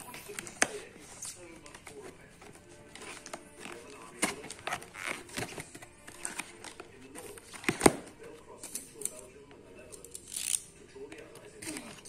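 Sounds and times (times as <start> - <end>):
hands handling cardboard box: 0.0 - 8.8.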